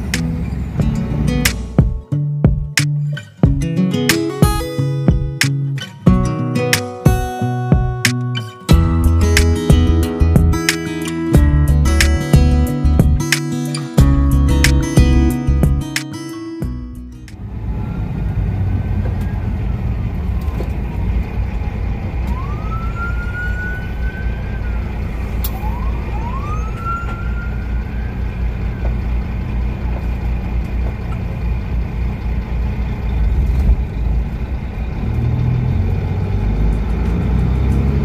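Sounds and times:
truck diesel engine rumbling: 0:00.0 - 0:04.1, 0:04.7 - 0:38.0
whistling pitch glides: 0:25.5 - 0:28.3.

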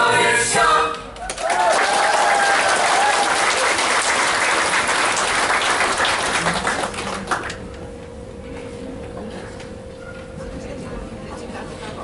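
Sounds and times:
audience applauding: 0:01.2 - 0:07.6.

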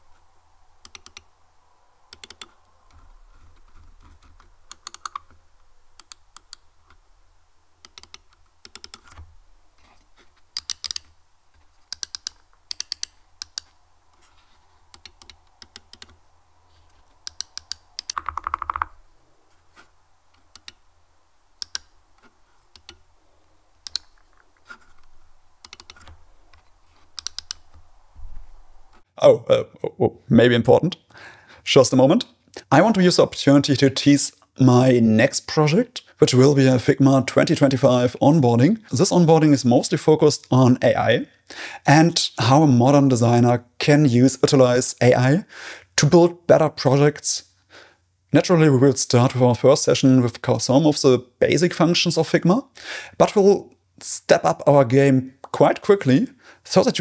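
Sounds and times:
mouse buttons clicking: 0:00.8 - 0:01.3, 0:02.1 - 0:02.6, 0:04.7 - 0:05.3, 0:07.8 - 0:09.2, 0:11.9 - 0:13.8, 0:14.9 - 0:16.2, 0:17.2 - 0:19.0, 0:20.4 - 0:20.8, 0:21.6 - 0:21.9, 0:22.7 - 0:23.0, 0:23.8 - 0:24.8, 0:25.6 - 0:26.2, 0:27.2 - 0:27.8.

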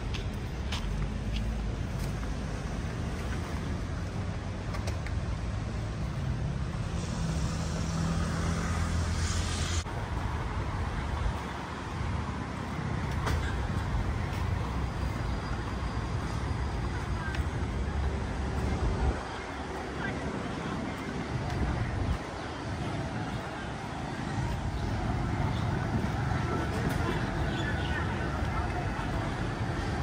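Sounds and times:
vehicle engines rumbling: 0:00.0 - 0:30.0
hiss: 0:06.8 - 0:09.9.

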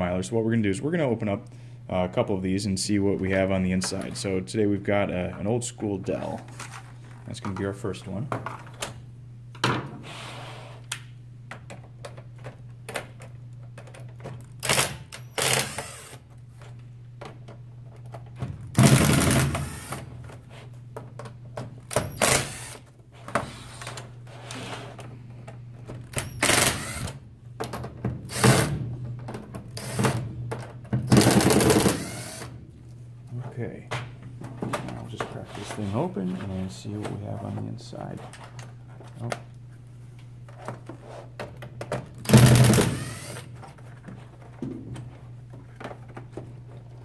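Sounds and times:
steady low hum: 0:00.0 - 0:47.0
impact driver hammering: 0:31.1 - 0:32.4, 0:42.3 - 0:43.4.

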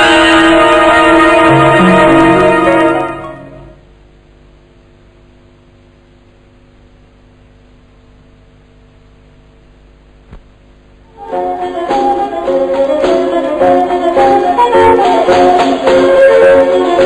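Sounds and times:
music: 0:00.0 - 0:03.9, 0:11.1 - 0:17.0
film soundtrack hiss and hum: 0:00.0 - 0:17.0.

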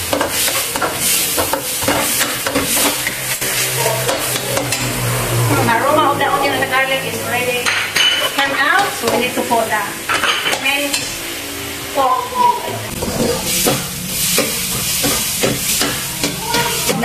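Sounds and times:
onion and garlic sizzling in oil: 0:00.0 - 0:05.2, 0:07.6 - 0:17.0
spatula scraping a pan: 0:00.0 - 0:05.9.

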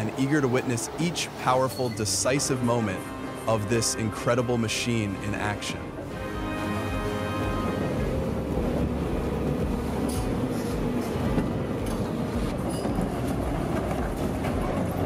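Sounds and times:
excavator engine rumble: 0:05.9 - 0:15.0.

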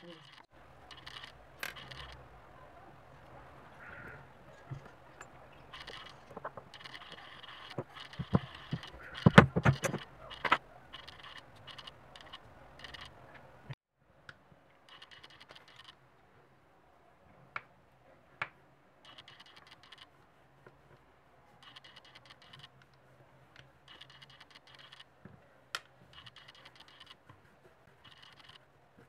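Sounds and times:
sharp clicks: 0:05.7 - 0:13.2.

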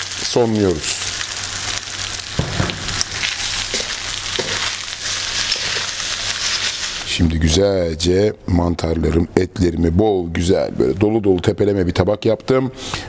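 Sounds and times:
pasta sizzling in a wok: 0:00.0 - 0:07.2.

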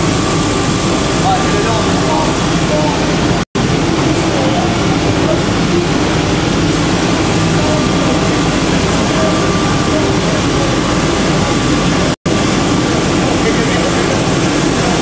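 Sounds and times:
wood lathe sanding drum running: 0:05.6 - 0:15.0.

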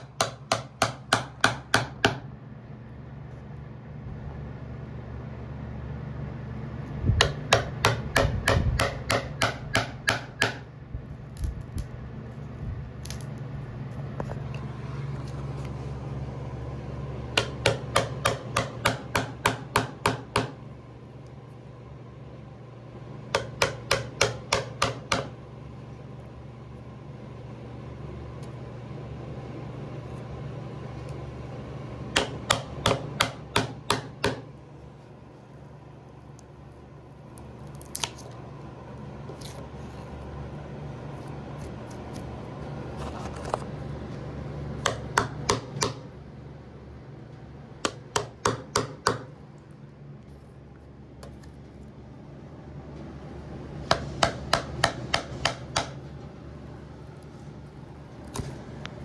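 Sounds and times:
chisel bar striking wood: 0:00.0 - 0:02.3, 0:07.2 - 0:10.6, 0:17.3 - 0:20.6, 0:23.3 - 0:25.3, 0:32.1 - 0:34.5, 0:44.8 - 0:46.0, 0:47.8 - 0:49.3, 0:53.9 - 0:56.0.

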